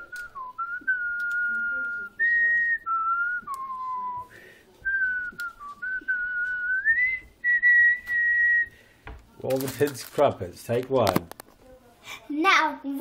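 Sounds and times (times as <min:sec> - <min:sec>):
person whistling a tune: 0:00.0 - 0:08.8.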